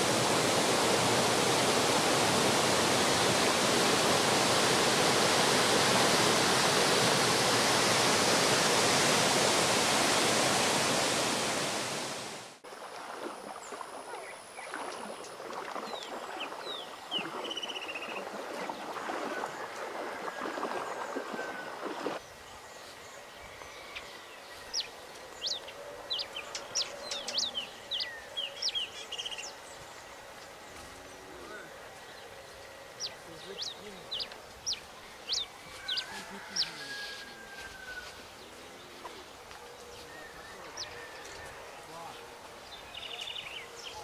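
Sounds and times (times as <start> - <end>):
floodwater pouring over spillway: 0.0 - 13.7
birds chirping: 13.6 - 44.0.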